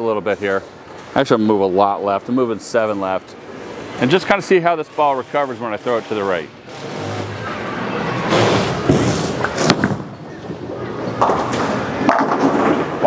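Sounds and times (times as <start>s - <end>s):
bowling alley background noise: 0.0s - 13.0s
bowling ball rolling rumble: 7.4s - 13.0s
bowling pins clattering: 8.6s - 13.0s
bowling ball thud: 11.2s - 13.0s.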